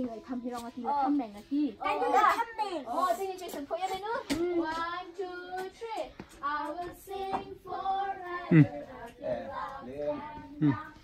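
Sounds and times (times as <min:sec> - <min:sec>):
children singing: 0:03.1 - 0:11.0.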